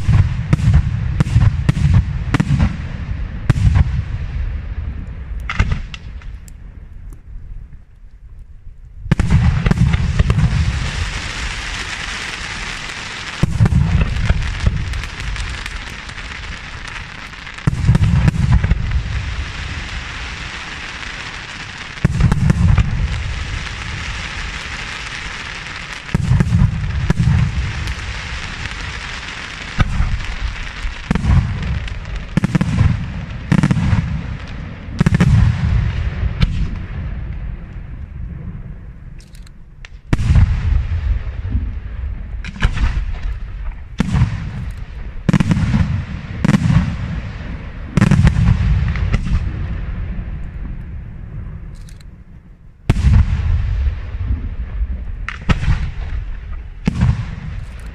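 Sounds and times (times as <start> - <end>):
firework shells booming: 0.0 - 6.5, 9.1 - 38.6, 39.9 - 50.8, 52.8 - 57.9
firework hiss: 9.3 - 36.6.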